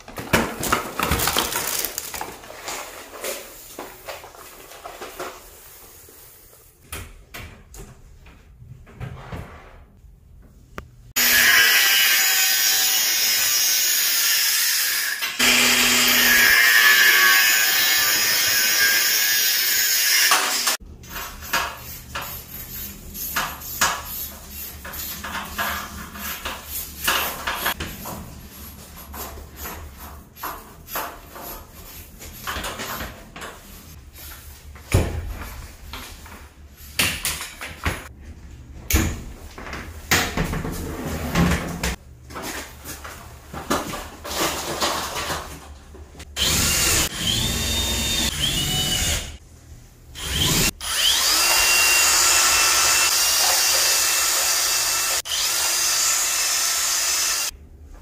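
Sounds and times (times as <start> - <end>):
power tool running into material: 15.4 - 19.0, 50.2 - 57.5.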